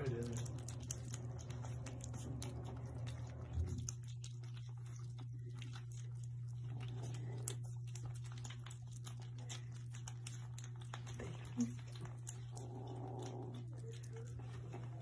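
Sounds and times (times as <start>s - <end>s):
kittens chewing and lapping: 0.0s - 15.0s
steady low hum: 0.0s - 15.0s.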